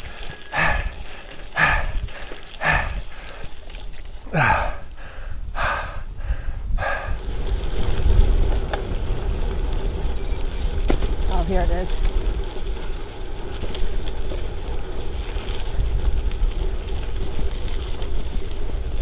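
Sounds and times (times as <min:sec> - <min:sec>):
person breathing hard: 0:00.0 - 0:03.6, 0:04.3 - 0:07.2
wind noise on microphone: 0:03.9 - 0:19.0.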